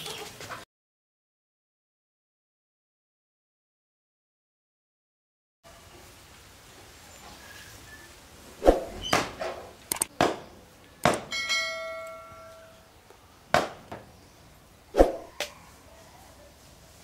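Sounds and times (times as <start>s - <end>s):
metal vessel ringing: 11.3s - 12.8s.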